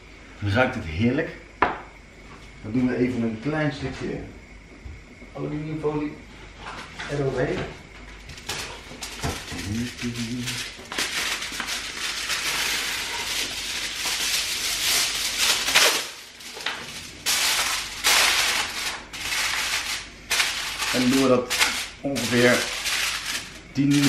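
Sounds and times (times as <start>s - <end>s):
aluminium foil crinkling: 8.1s - 24.0s.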